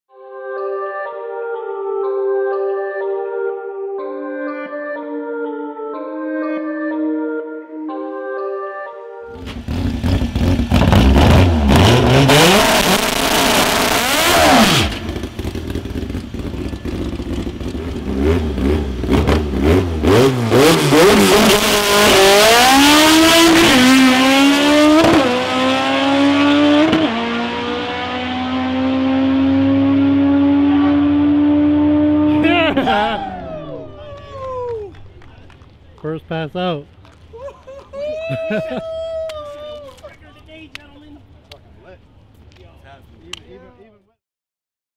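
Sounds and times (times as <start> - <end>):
heavy tyre noise: 9.3 - 35.2
car engine revving: 9.4 - 34.0.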